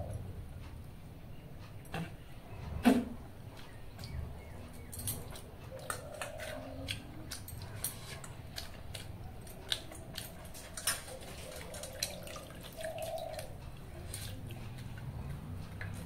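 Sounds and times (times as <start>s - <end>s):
wet rice squishing: 5.8s - 16.0s.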